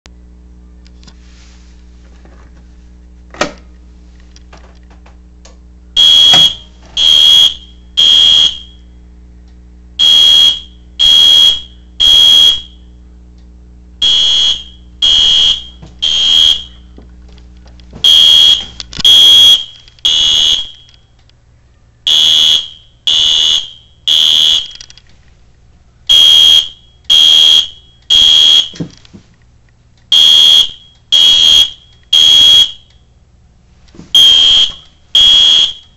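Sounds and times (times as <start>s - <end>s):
fire alarm horn blasts: 6.0s - 8.9s, 10.0s - 13.0s, 14.0s - 16.9s, 18.0s - 21.0s, 22.1s - 24.8s, 26.1s - 28.8s, 30.1s - 33.1s, 34.2s - 35.9s.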